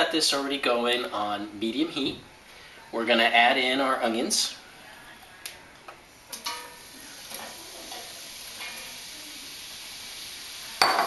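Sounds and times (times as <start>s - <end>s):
onions sizzling in hot oil: 6.3s - 11.0s.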